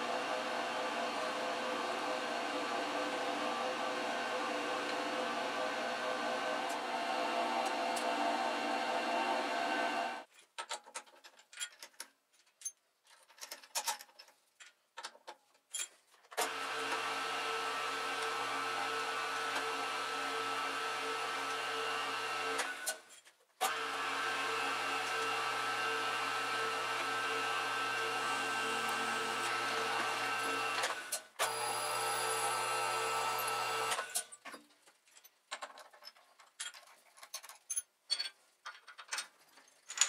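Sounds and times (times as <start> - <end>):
mill spindle motor whine: 0.0 - 10.3, 16.4 - 23.0, 23.6 - 34.2.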